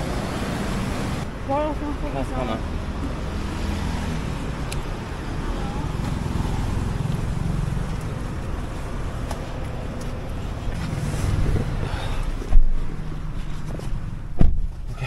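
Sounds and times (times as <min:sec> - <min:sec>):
low rumble of street traffic: 0:00.0 - 0:15.0
sharp thumps: 0:13.7 - 0:14.9.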